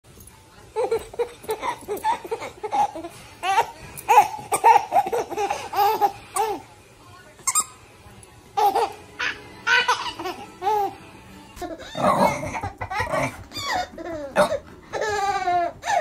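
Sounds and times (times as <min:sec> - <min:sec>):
baby laughing: 0:00.8 - 0:06.6, 0:08.6 - 0:11.0, 0:11.6 - 0:16.0.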